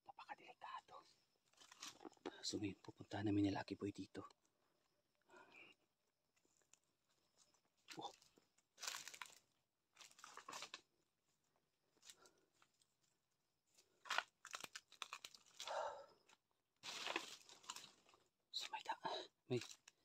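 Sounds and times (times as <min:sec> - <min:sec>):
footsteps crunching dry leaves: 0:08.8 - 0:09.4, 0:16.8 - 0:17.9.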